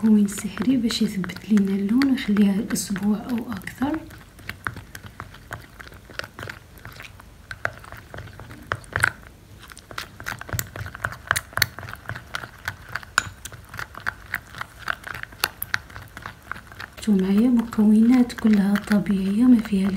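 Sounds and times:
stick stirring paste in glass bowl: 0.0 - 19.9.

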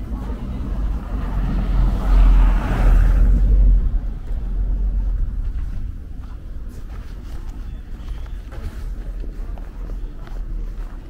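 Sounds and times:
car driving past: 0.0 - 6.2.

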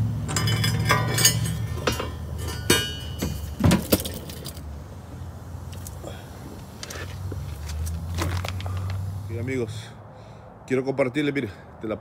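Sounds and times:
low steady hum: 0.0 - 9.5
light metal clinks and taps: 0.3 - 4.6.

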